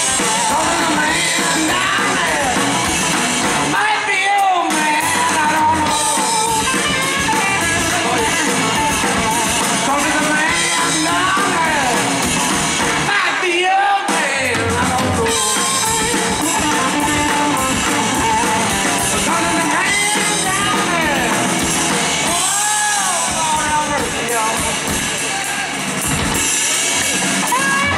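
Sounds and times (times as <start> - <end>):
bending lead guitar line: 0.0 - 13.1, 14.5 - 27.9
live blues-rock band: 0.0 - 27.9.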